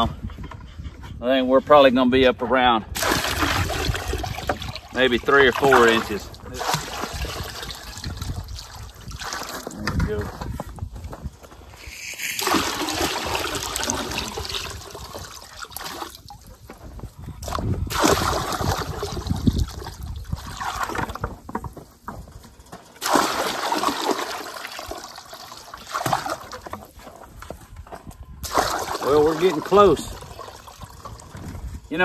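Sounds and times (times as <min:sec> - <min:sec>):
water splashing into a tank: 0:03.0 - 0:10.2, 0:11.8 - 0:16.6, 0:17.4 - 0:21.6, 0:23.0 - 0:27.0, 0:28.4 - 0:31.6.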